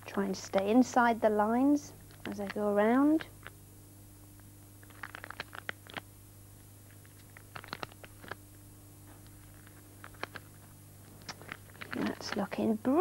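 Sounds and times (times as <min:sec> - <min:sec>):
stickers being peeled off: 0:04.8 - 0:06.1, 0:06.9 - 0:08.4, 0:09.1 - 0:12.5.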